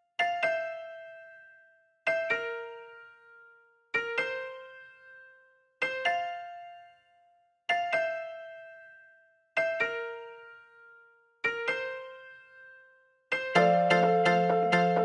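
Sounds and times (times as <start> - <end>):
slow keyboard notes: 13.6 - 15.0.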